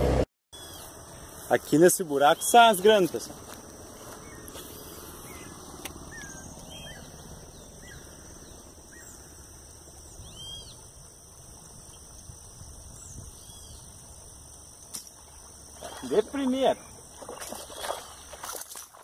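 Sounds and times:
bird chirps: 0.6s - 1.0s, 4.1s - 10.9s
high insect drone: 0.6s - 19.0s.

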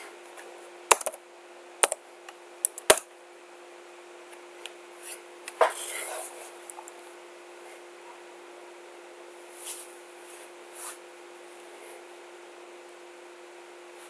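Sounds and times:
steady faint hum: 0.0s - 14.0s.

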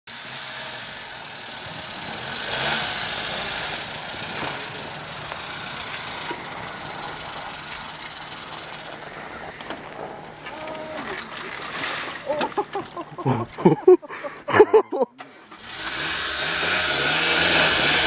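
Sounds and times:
car engine revving: 0.1s - 10.5s, 15.2s - 18.0s.

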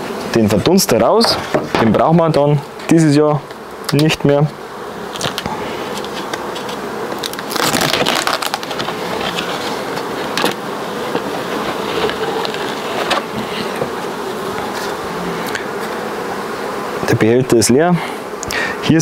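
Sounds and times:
honeybees buzzing: 0.0s - 19.0s
scraping and knocks of wood: 1.2s - 2.1s, 5.1s - 16.0s.

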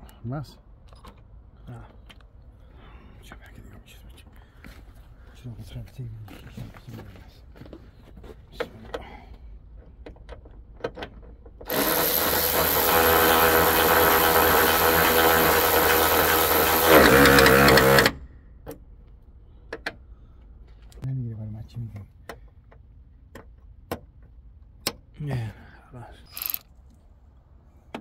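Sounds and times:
power tool motor running: 11.7s - 18.2s.

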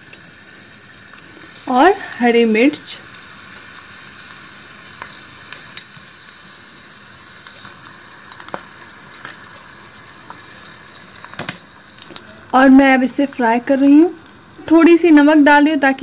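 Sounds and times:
onion sizzling in hot oil: 0.0s - 15.0s.

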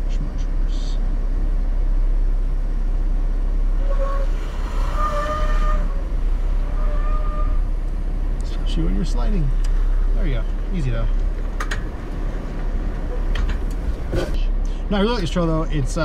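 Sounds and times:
engine low rumble: 0.0s - 16.0s
high squealing whine: 3.7s - 7.8s.

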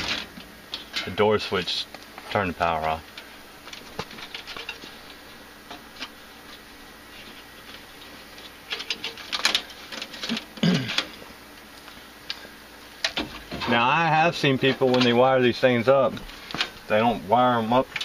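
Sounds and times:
clicks and rustles of wiring: 1.9s - 12.4s, 14.6s - 15.2s.

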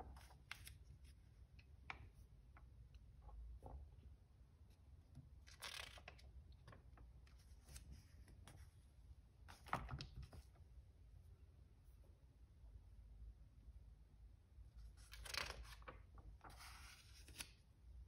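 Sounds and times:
magazine pages turning: 5.4s - 6.8s, 15.0s - 17.6s.

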